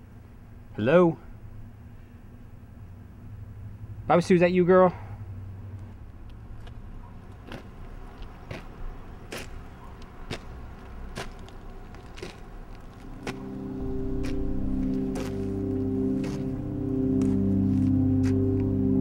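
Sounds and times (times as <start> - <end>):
steady low hum: 0.0 - 19.0
footsteps on concrete: 6.6 - 13.6, 14.2 - 16.6, 17.2 - 18.7
music: 13.1 - 19.0.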